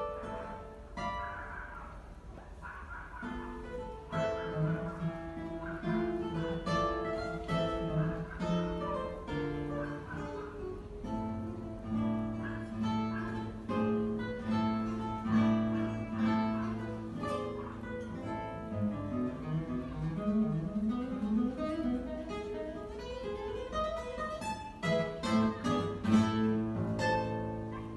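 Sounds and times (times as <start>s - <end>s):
classical guitar playing: 0.0s - 27.9s.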